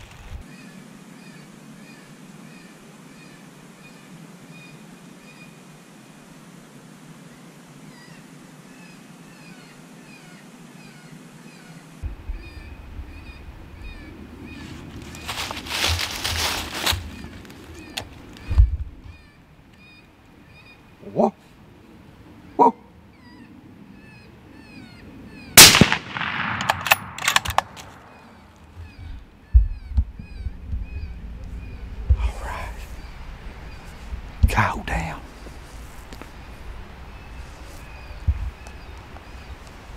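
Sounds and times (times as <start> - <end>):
small birds chirping: 7.2 - 25.6, 27.9 - 39.9
sharp clicks: 25.6 - 28.1
suppressed rifle shot: 25.6 - 28.2
low rumble: 28.0 - 34.6.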